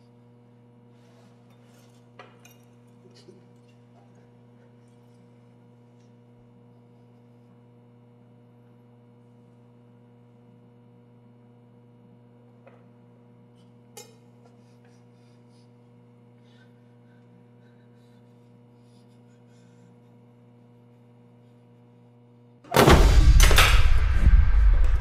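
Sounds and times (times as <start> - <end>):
low steady hum: 0.0 - 25.0
horror film music sting: 22.8 - 25.0.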